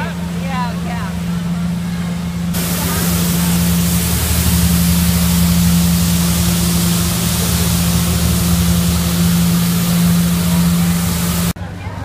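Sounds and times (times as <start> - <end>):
street sweeper engine hum: 0.0 - 12.0
loud even hiss: 2.5 - 11.6.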